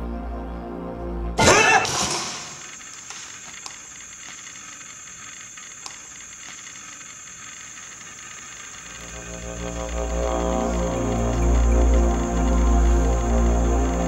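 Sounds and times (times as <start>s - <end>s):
high-pitched hiss: 1.4s - 14.0s
faint ticks: 2.6s - 14.0s
low music: 9.1s - 14.0s.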